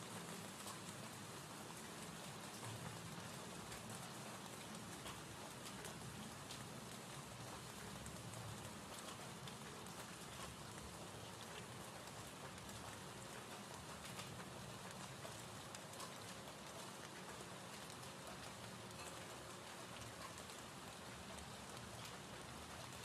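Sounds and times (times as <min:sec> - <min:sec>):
rain hiss: 0:00.0 - 0:23.0.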